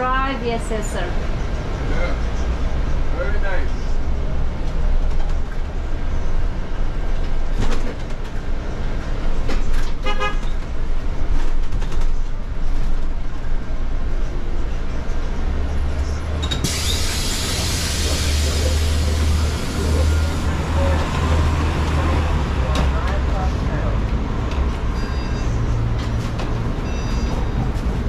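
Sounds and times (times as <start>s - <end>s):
vehicle engine rumble: 0.0s - 28.0s
loud air hiss: 16.6s - 20.0s.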